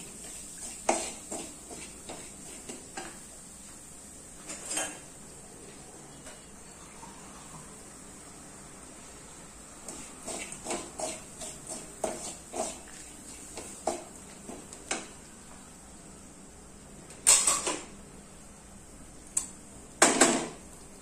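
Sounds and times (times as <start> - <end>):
wooden spatula scraping a pan: 0.0 - 3.2, 9.8 - 15.0.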